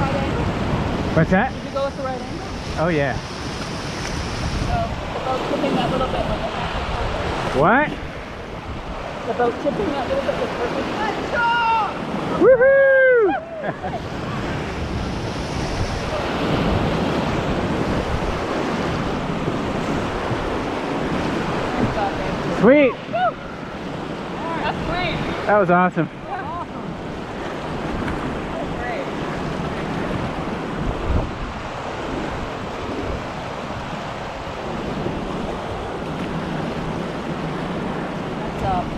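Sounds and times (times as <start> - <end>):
river water rushing: 0.0 - 38.9
whitewater rapid roaring: 0.0 - 38.9
wind buffeting microphone: 0.0 - 38.9.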